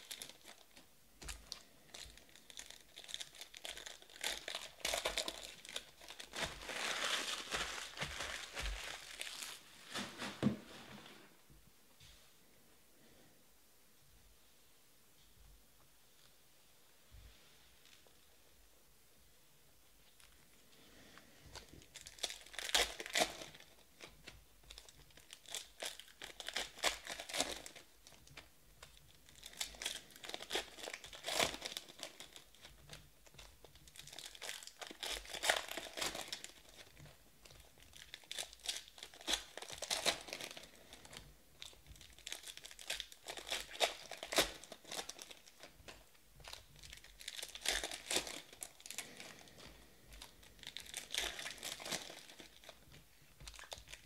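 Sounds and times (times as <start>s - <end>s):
foil wrappers tearing and crinkling: 0.0s - 10.5s, 21.6s - 54.0s.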